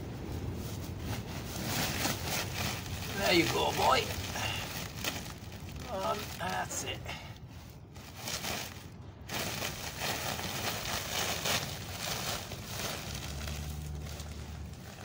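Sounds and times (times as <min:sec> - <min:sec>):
low steady hum: 0:00.0 - 0:15.0
straw rustling in plastic sack: 0:00.0 - 0:15.0.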